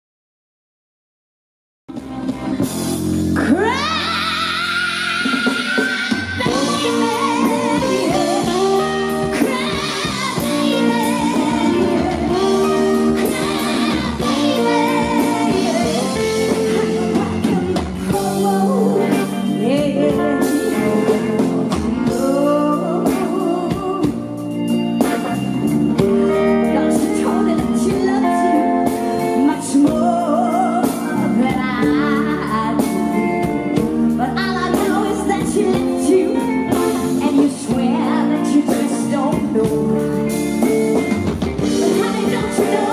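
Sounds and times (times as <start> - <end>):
bass guitar: 1.9 - 42.9
drums: 1.9 - 42.9
electric guitar: 1.9 - 42.9
woman singing: 3.4 - 24.4, 26.4 - 41.0, 41.6 - 42.9.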